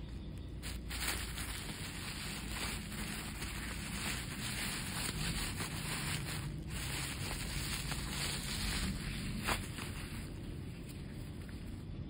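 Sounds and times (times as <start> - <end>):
bubble wrap crinkling: 0.0 - 12.0.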